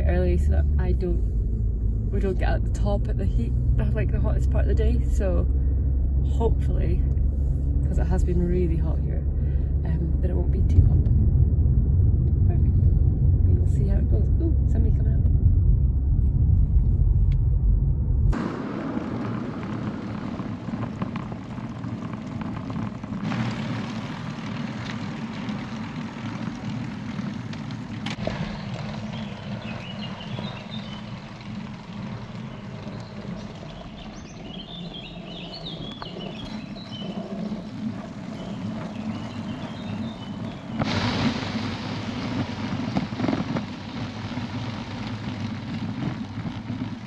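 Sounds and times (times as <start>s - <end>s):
wind buffeting microphone: 0.0s - 47.0s
birds chirping: 28.2s - 42.5s.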